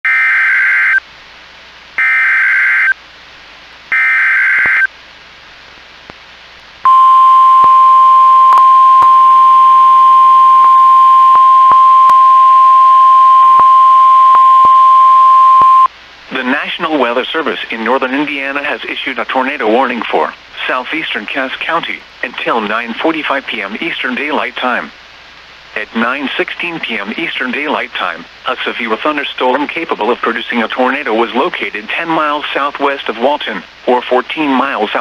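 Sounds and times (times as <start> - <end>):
faint static clicks: 0.6 - 35.0
steady warning alarm tone: 6.9 - 15.9.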